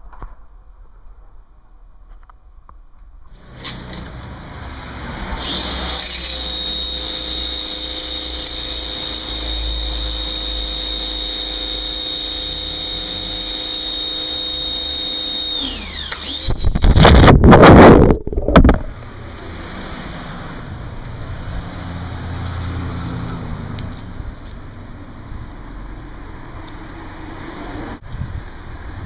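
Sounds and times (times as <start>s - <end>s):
pressure washer motor whining: 5.4s - 16.8s.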